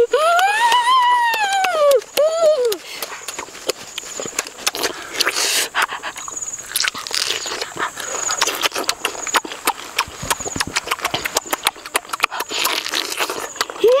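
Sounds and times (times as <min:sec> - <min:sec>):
person biting and chewing fruit: 0:01.4 - 0:14.0.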